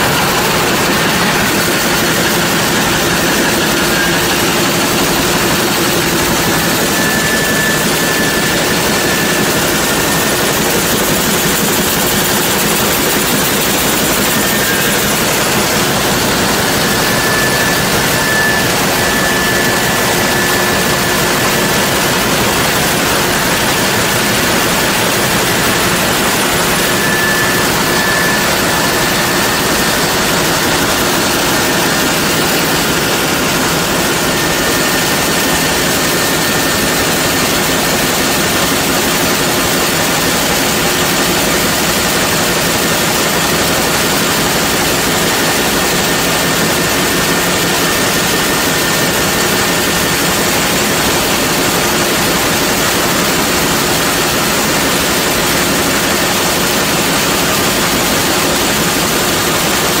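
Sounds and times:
faint high whine: 0.0s - 37.9s
sawmill machinery running: 0.0s - 60.0s.

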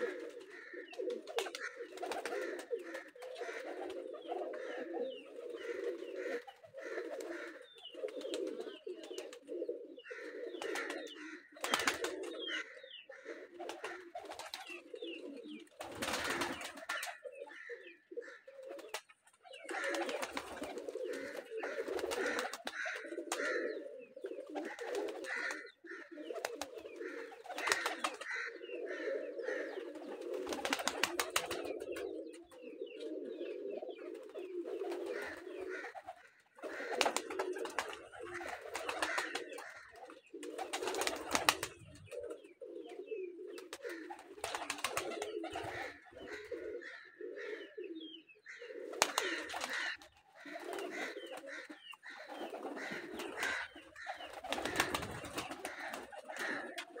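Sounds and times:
pigeons cooing: 0.0s - 57.0s.

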